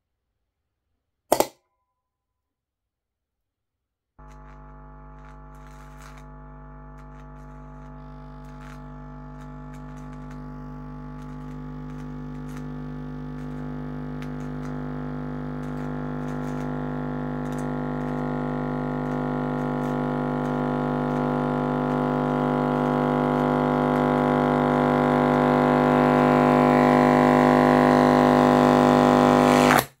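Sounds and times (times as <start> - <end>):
speaker humming low buzz: 4.2 - 29.8.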